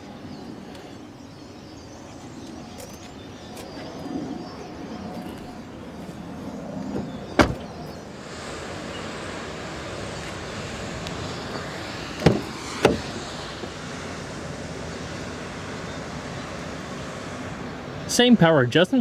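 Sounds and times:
steady background hiss: 0.0 - 19.0
car door slamming: 6.9 - 7.8, 12.2 - 13.1
car door latch clacks: 7.4 - 7.7, 12.2 - 13.0.

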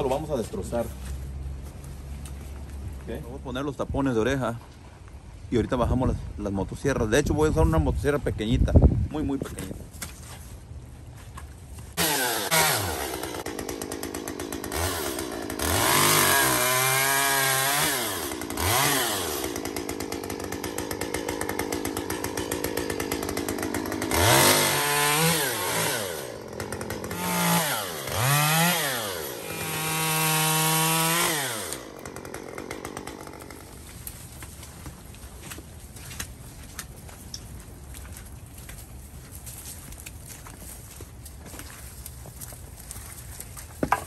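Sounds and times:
small chainsaw cutting branches: 11.9 - 36.9.

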